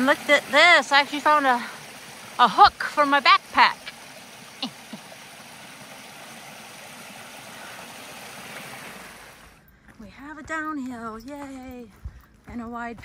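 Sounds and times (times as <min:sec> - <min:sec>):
creek water rushing over rocks: 0:00.0 - 0:09.6.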